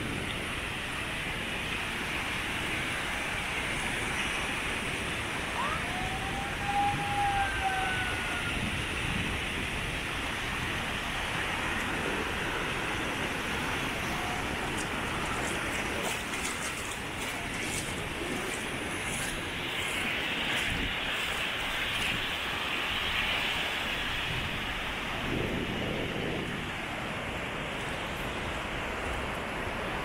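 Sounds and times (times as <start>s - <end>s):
beach surf washing: 0.0s - 30.0s
gliding whistling tones: 5.5s - 8.7s.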